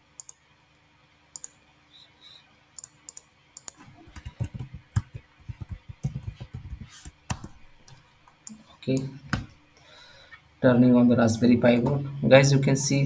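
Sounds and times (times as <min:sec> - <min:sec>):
mouse clicks: 0:00.2 - 0:00.4, 0:01.4 - 0:01.6, 0:02.8 - 0:07.5
typing on computer keyboard: 0:02.8 - 0:07.5.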